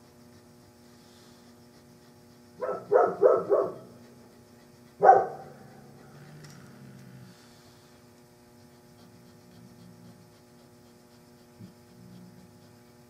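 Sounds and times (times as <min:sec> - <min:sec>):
dog barking: 0:02.6 - 0:04.0, 0:05.0 - 0:06.1.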